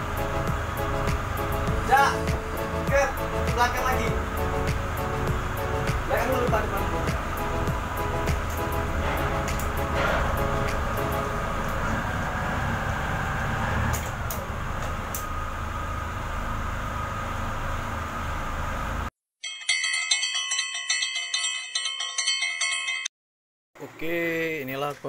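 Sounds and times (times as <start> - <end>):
boat engines droning: 0.0 - 19.1.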